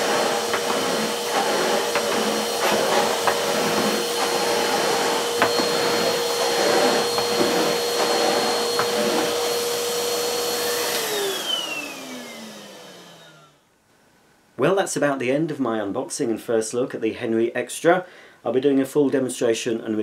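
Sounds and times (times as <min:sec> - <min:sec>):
vacuum nozzle on carpet: 0:00.0 - 0:13.5
vacuum cleaner motor whine: 0:00.0 - 0:13.6.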